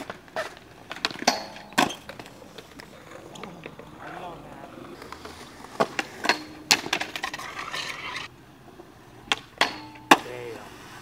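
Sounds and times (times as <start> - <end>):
skateboard pops and knocks: 0.0 - 2.9, 5.7 - 7.5, 9.3 - 10.3
wheels rolling on concrete: 0.0 - 11.0.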